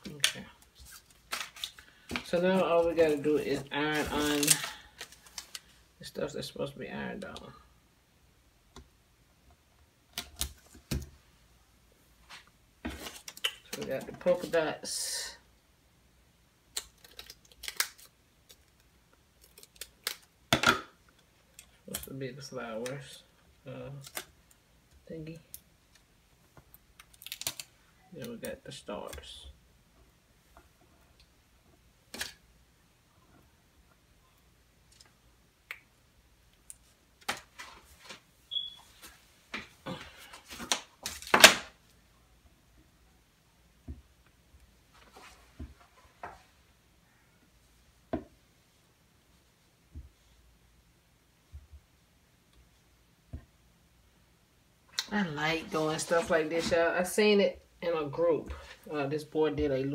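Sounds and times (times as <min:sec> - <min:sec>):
vinyl decals crinkling and peeling: 0:00.0 - 0:06.4, 0:12.2 - 0:14.9, 0:16.6 - 0:20.5, 0:21.2 - 0:29.4, 0:36.6 - 0:42.0, 0:55.0 - 0:57.2.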